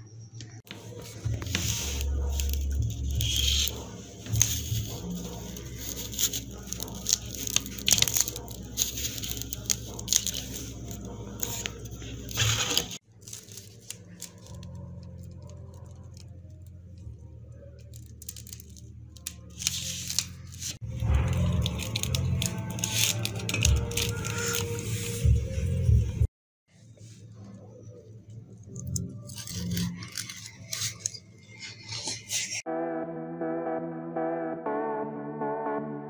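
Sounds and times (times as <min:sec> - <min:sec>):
toy clicks and scrapes: 0:28.7 - 0:32.7.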